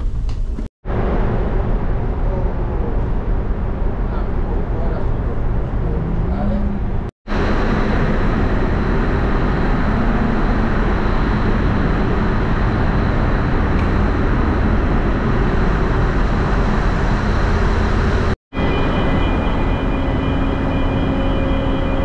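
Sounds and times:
ship machinery deep roar: 0.0s - 22.0s
faint high whine: 7.3s - 22.0s.

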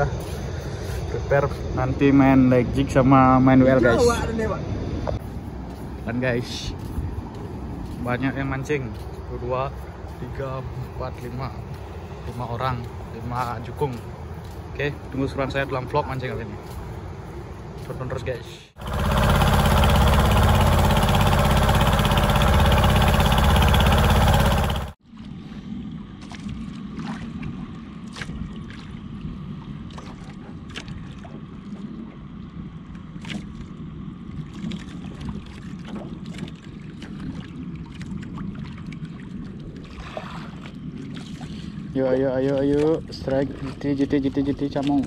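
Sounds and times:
water lapping against boat hull: 18.8s - 45.0s.

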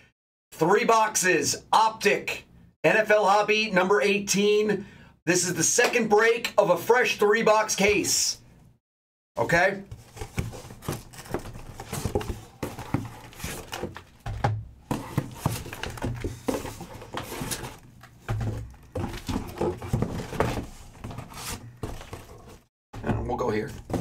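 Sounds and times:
cardboard rustling and scraping: 9.6s - 24.0s
boxes knocking: 9.8s - 24.0s.

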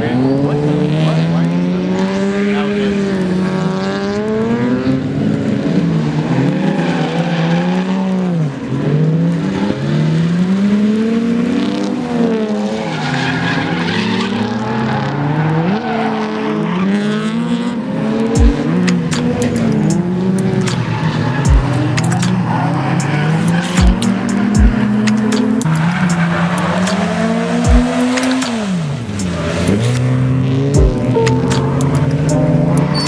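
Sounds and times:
car engines revving: 0.0s - 33.0s
tyre squeal: 18.8s - 29.8s, 31.2s - 33.0s.

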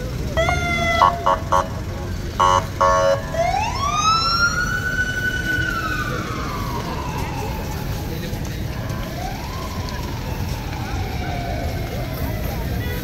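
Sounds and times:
traffic rumble: 0.0s - 13.0s
siren wailing: 0.4s - 1.8s, 2.4s - 8.2s, 9.1s - 11.8s
horn honks: 0.4s - 3.4s.

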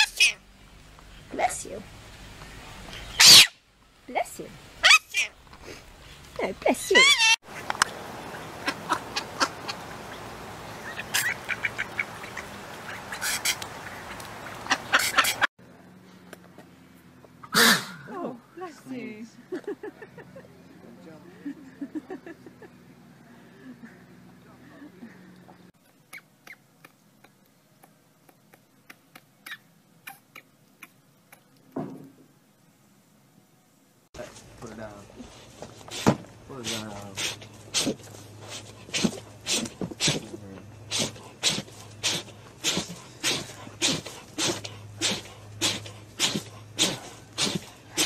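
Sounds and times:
mallard drake calling: 0.0s - 0.4s, 3.1s - 3.5s, 4.8s - 5.4s, 6.9s - 15.5s
short breathy puff: 40.9s - 48.0s.

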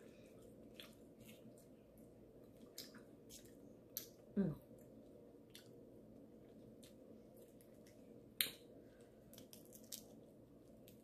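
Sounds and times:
low room hum: 0.0s - 11.0s
crab shell cracking: 9.3s - 10.2s.

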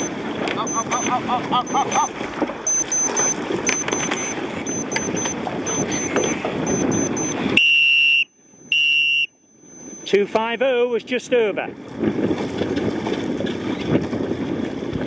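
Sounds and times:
wind noise on microphone: 0.0s - 10.2s, 11.7s - 15.0s.

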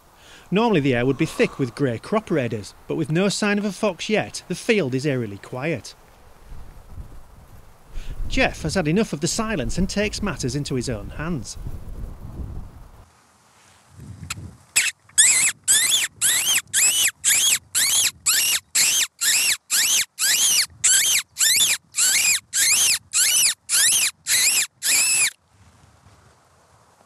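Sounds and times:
short high mouth squeaks: 14.3s - 25.4s.

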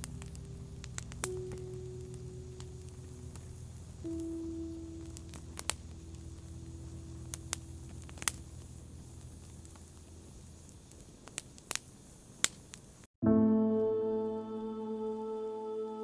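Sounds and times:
faint low rumble: 0.0s - 11.4s
held musical tone: 13.2s - 16.0s.

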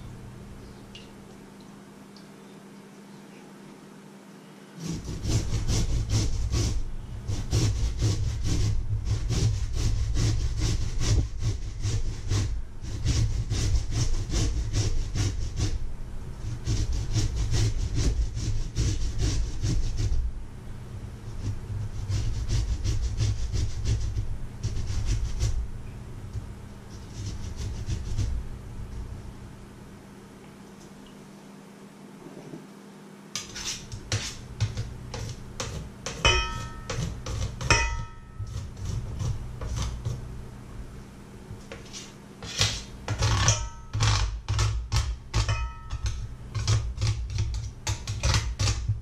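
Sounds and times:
potato grating on metal grater: 4.8s - 15.8s, 16.4s - 20.3s, 21.2s - 25.7s, 26.3s - 28.4s, 33.4s - 40.4s, 41.7s - 49.0s.

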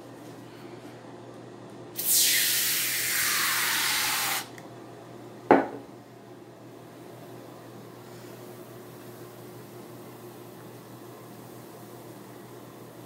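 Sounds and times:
aerosol can spraying hiss: 2.0s - 4.5s
metal can knocking on table: 5.5s - 5.8s.

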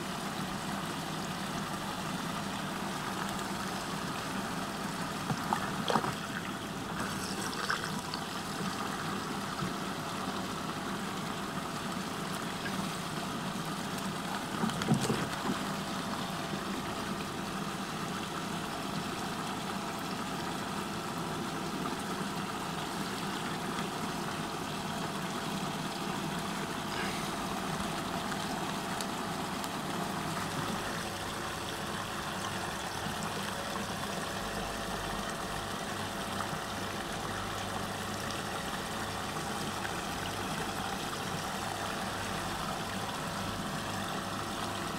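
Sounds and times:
water rushing down a drain: 1.4s - 18.8s
steady hum: 1.8s - 17.4s.

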